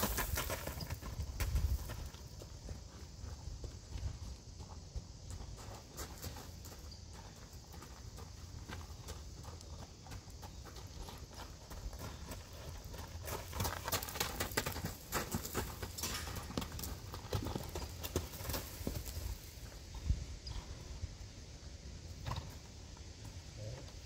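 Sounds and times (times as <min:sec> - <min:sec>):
horse hooves on gravel: 0:00.0 - 0:20.8.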